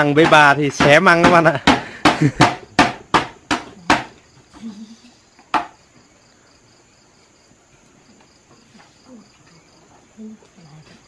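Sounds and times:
knife pounding bamboo: 0:00.0 - 0:04.2
cricket chirping: 0:00.0 - 0:11.0.

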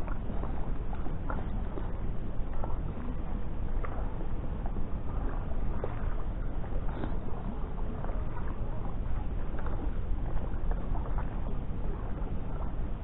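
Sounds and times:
wind rumble on microphone: 0:00.0 - 0:13.0.

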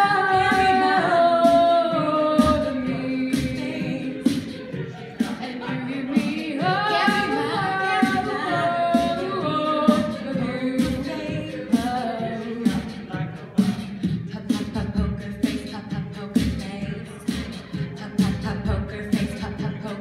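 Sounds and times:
choir singing in harmony: 0:00.0 - 0:14.7
vocal percussion beat: 0:00.0 - 0:20.0.

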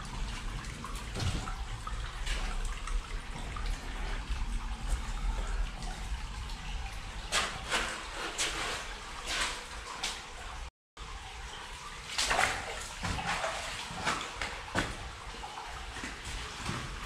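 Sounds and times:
splashing steps: 0:00.0 - 0:06.4, 0:12.1 - 0:17.0
shallow water trickling: 0:00.0 - 0:17.0.

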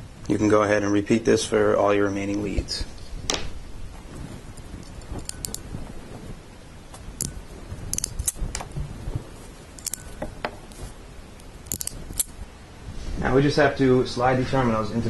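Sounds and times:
crimping tool clicks: 0:07.2 - 0:08.8, 0:09.8 - 0:10.4, 0:11.4 - 0:12.4.

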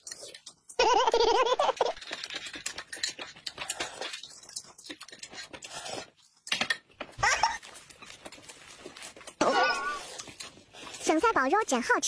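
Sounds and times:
chewing and lip smacking: 0:02.0 - 0:06.5, 0:10.0 - 0:11.1.

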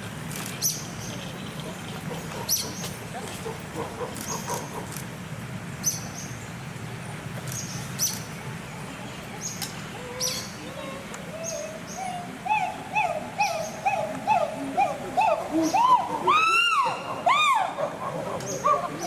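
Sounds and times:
chimpanzee pant-hooting: 0:11.3 - 0:19.0.

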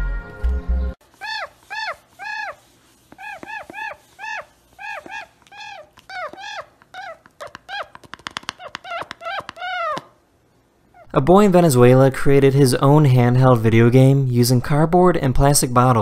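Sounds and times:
music: 0:00.0 - 0:01.0
toucan yelping calls: 0:01.1 - 0:10.2.

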